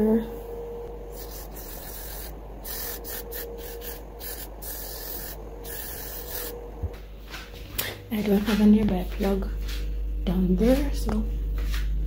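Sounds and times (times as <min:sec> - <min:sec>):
aerosol spray hissing: 0:01.1 - 0:06.6.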